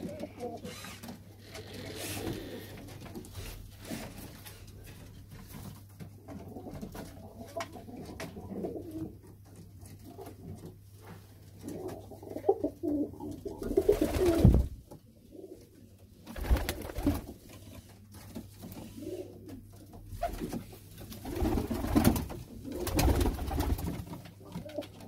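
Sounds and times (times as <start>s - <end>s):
pigeons cooing: 0.0s - 3.0s, 6.4s - 9.3s, 11.6s - 15.9s, 18.8s - 23.6s.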